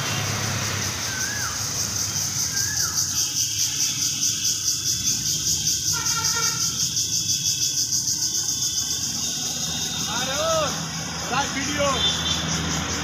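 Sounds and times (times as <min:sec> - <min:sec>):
low road traffic rumble: 0:00.0 - 0:13.0
pulsing insect chorus: 0:00.0 - 0:13.0
bird whistles: 0:01.1 - 0:01.6, 0:02.5 - 0:03.3.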